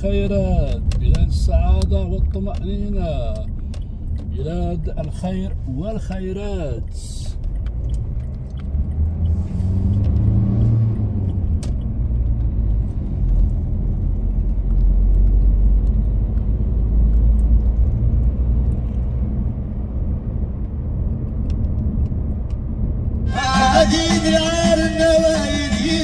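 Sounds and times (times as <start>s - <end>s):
car engine and tyre rumble: 0.0s - 26.0s
lorry passing: 23.2s - 26.0s.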